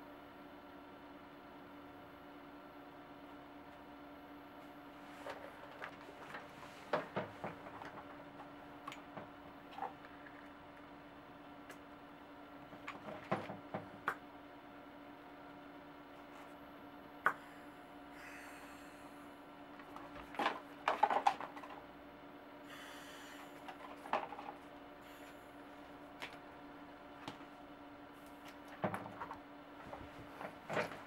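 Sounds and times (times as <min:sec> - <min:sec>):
air hissing from inflator: 0:22.7 - 0:23.6, 0:25.0 - 0:25.5.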